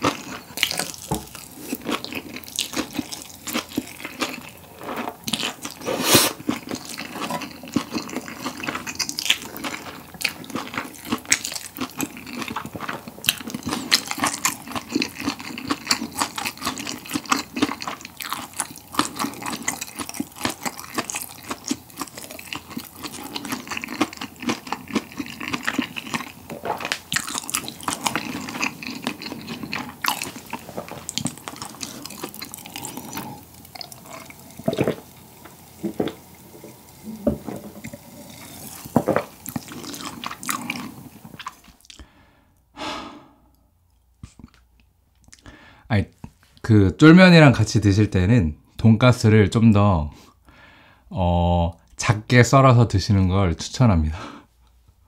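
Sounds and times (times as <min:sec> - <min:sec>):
chewing noodles: 0:00.0 - 0:42.0.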